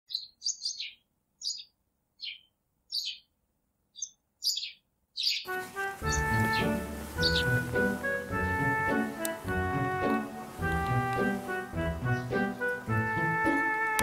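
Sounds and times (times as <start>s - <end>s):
small birds chirping: 0.1s - 13.6s
music: 5.5s - 14.0s.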